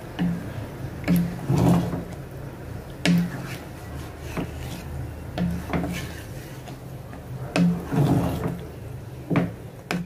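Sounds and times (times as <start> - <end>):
utensil scraping a pan: 1.1 - 2.2, 3.1 - 6.9, 7.5 - 8.8.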